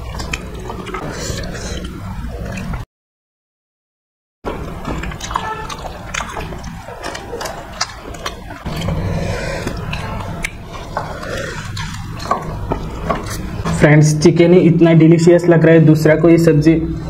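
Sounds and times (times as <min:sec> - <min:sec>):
chewing and lip smacks: 0:00.0 - 0:02.8, 0:04.5 - 0:13.7.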